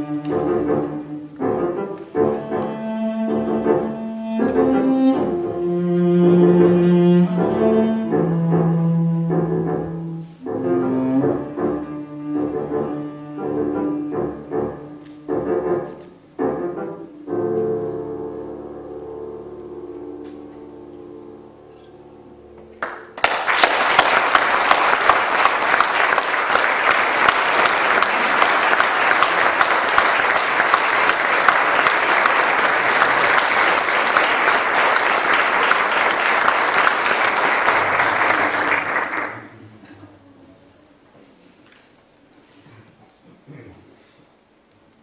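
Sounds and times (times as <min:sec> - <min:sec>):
piano and cello notes: 0:00.0 - 0:23.1
audience applause: 0:22.8 - 0:39.8.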